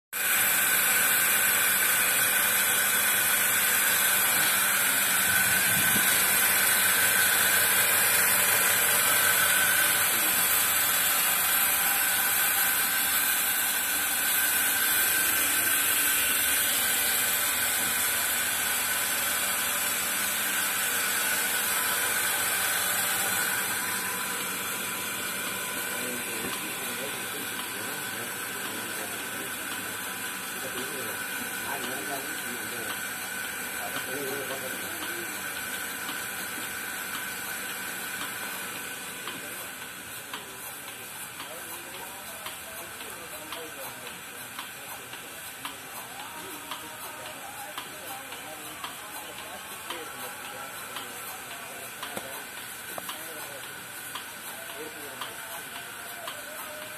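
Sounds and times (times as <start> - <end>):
milking machine air hiss: 0.2 - 56.9.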